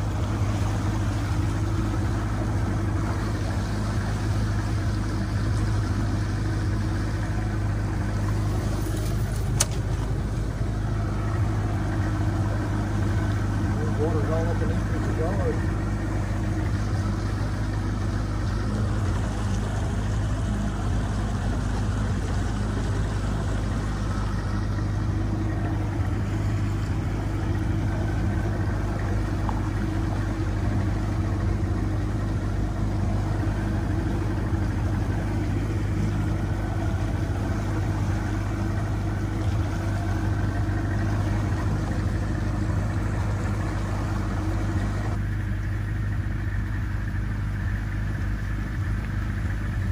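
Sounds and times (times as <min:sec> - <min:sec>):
boat motor running steadily: 0:00.0 - 0:49.9.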